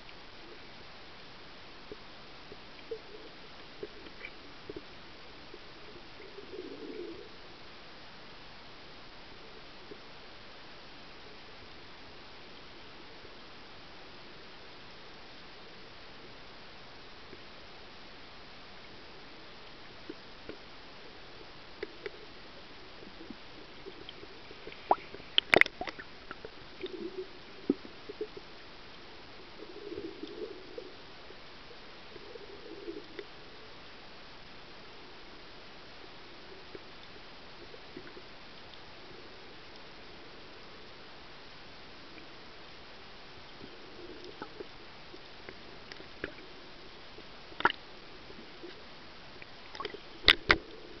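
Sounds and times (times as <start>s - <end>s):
low gurgles of surging water: 0.0s - 51.0s
steady underwater hiss: 0.0s - 51.0s
faint clicks: 23.8s - 27.0s, 49.4s - 50.7s.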